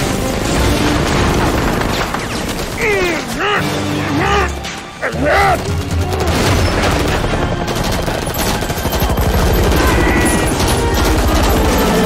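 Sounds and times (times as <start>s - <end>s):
automatic gunfire: 5.6s - 12.0s.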